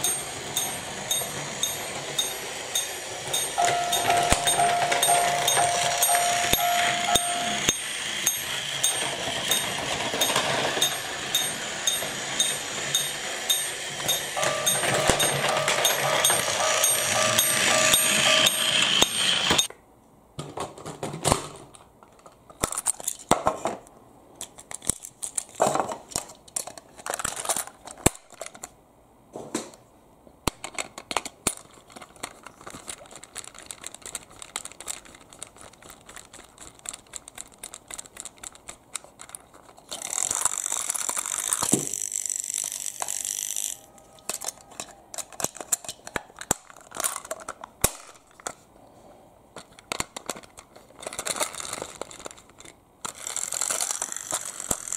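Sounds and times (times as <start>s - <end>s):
plastic toy handled: 24.4s - 28.8s, 30.5s - 48.7s, 49.6s - 54.9s.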